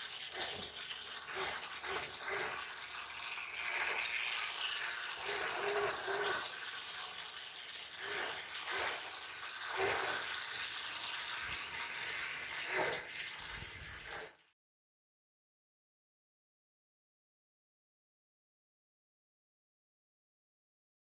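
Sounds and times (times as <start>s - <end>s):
small electric motor whirring: 5.2s - 6.5s, 7.9s - 10.3s, 11.8s - 14.4s.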